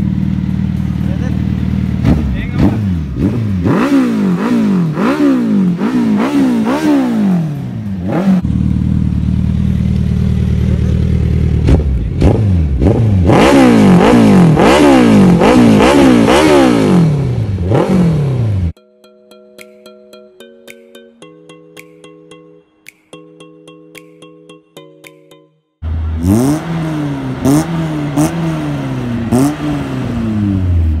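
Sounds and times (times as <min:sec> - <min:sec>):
motorcycle engine idling: 0:00.0 - 0:03.2, 0:07.8 - 0:12.8
motorcycle engine revving: 0:00.0 - 0:18.8, 0:25.8 - 0:31.0.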